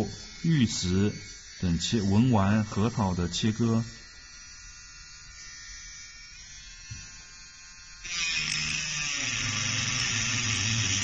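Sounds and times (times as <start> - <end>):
rotary tool whine: 0.0 - 11.0
disc grinding into workpiece: 8.1 - 11.0.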